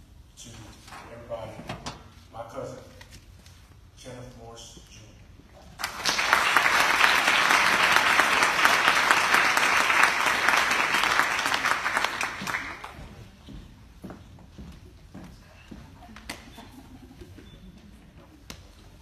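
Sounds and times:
audience applauding: 5.8 - 13.1.

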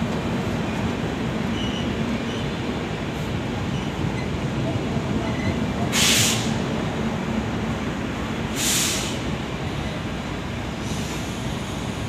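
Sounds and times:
train coaches rolling past: 0.0 - 12.0
short sharp hisses: 6.0 - 6.5, 8.6 - 9.2.

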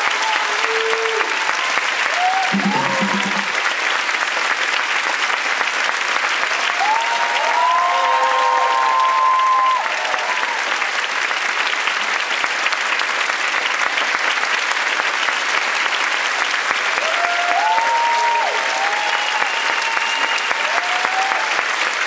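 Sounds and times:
audience calls: 0.0 - 4.1, 6.4 - 11.0, 16.9 - 21.8
audience applauding: 0.0 - 22.0.

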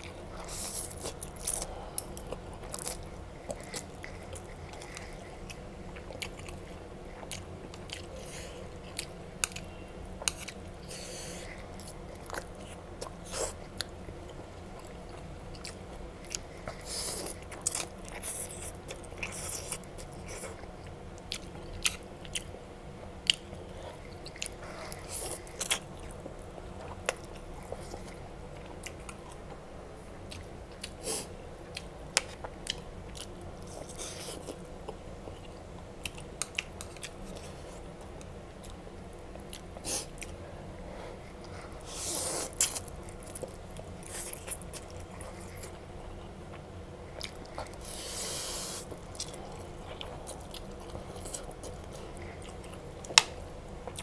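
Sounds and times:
low steady hum: 0.0 - 54.0
person slurping and chewing noodles: 41.5 - 45.8, 47.1 - 52.8.

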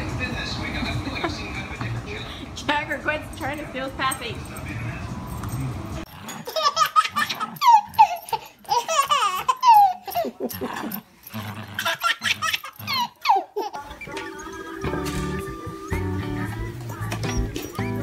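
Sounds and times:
baby laughing: 6.3 - 10.9, 11.8 - 14.2.

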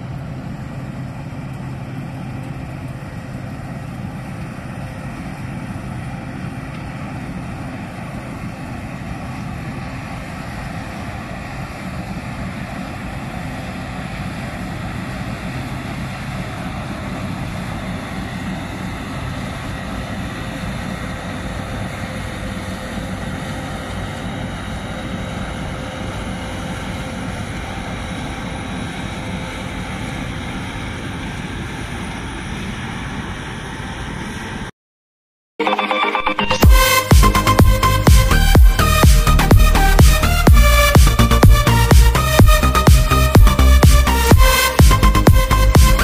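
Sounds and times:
combine harvester drone: 0.0 - 34.7, 35.6 - 46.0
loud electronic music: 35.6 - 46.0.

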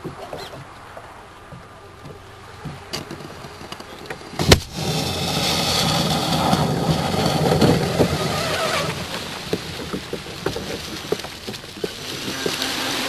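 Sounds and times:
electric rc boat motor and water rush: 0.0 - 13.0
sharp crack: 2.8 - 13.0.

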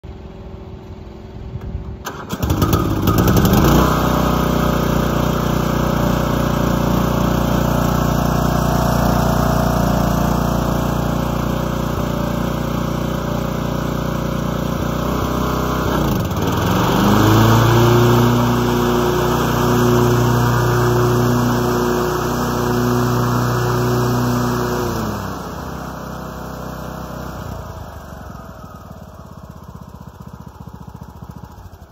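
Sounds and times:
lawn mower engine running: 0.1 - 31.9
engine starter cranking: 1.9 - 3.8.

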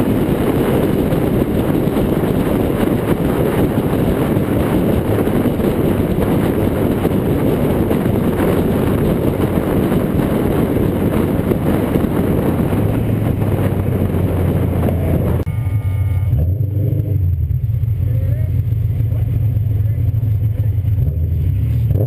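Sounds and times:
wind rushing over camera: 0.0 - 15.5
car engine drone: 0.0 - 22.0
car exhaust engine sound: 0.0 - 22.0
road noise: 0.0 - 22.0.

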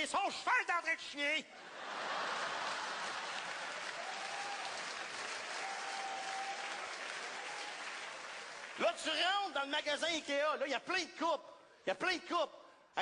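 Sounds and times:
audience applauding: 1.8 - 9.2.

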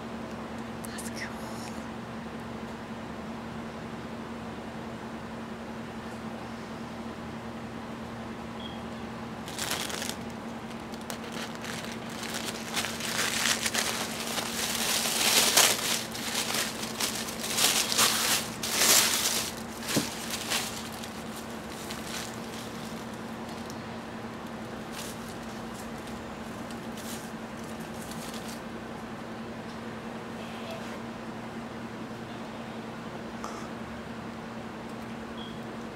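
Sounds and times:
tissue paper crinkling: 9.4 - 23.8, 24.4 - 28.6.

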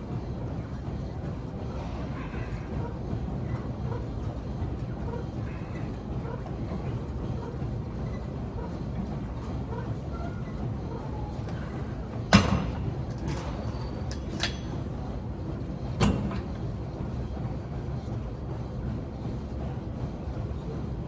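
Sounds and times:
steady low hum: 0.0 - 21.0
weight machine metallic clanks: 11.5 - 14.9, 15.9 - 16.6.

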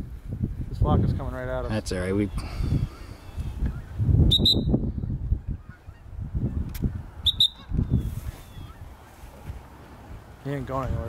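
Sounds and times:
geese honking: 5.4 - 9.3.

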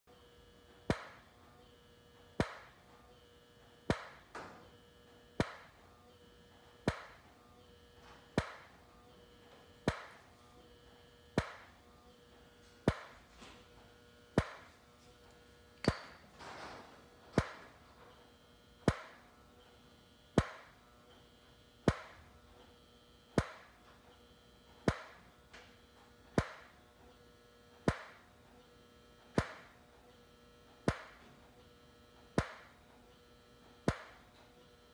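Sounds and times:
faint power supply whine: 0.1 - 34.9
steady electrical hum: 0.1 - 34.9
strobe flash tube snapping: 2.4 - 2.7, 3.9 - 4.2, 5.4 - 5.7, 6.8 - 7.2, 8.4 - 8.7, 9.8 - 10.2, 11.4 - 11.7, 12.8 - 13.2, 14.4 - 14.7, 17.4 - 17.6, 18.8 - 19.2, 20.4 - 20.7, 21.8 - 22.2, 23.4 - 23.7, 26.4 - 26.7, 27.8 - 28.2, 29.4 - 29.7, 30.8 - 31.2, 32.4 - 32.7, 33.8 - 34.2.

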